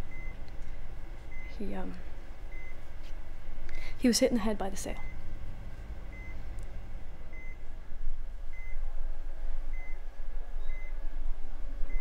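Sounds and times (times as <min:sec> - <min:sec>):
patient monitor beeping: 0:00.0 - 0:02.9, 0:06.0 - 0:06.5, 0:07.3 - 0:07.6
steady low hum: 0:00.0 - 0:12.0.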